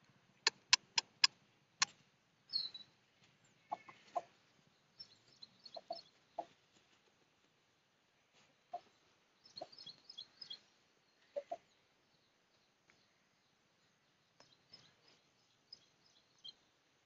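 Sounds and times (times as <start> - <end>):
sharp clicks: 0.5 - 2.0.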